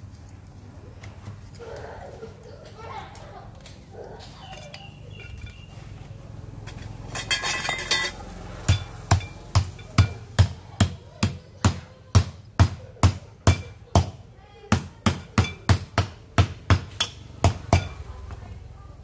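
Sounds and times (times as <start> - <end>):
metal clinking: 6.6 - 10.2.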